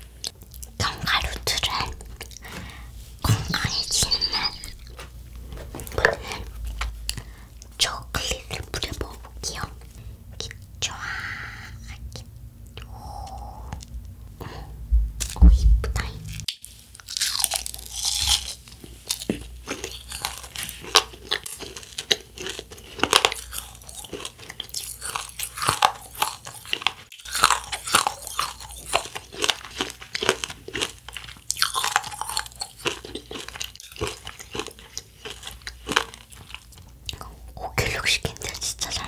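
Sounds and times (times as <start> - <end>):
person chewing crunchy candy: 16.4 - 39.0.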